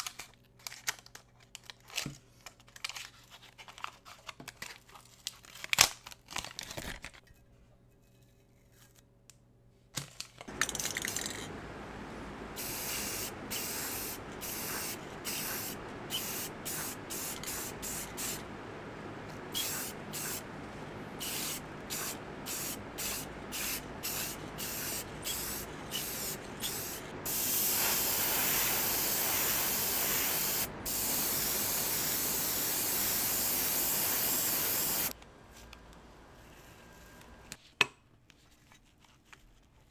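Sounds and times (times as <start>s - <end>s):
steady low noise: 10.5s - 32.2s
airbrush spraying paint: 10.5s - 35.2s.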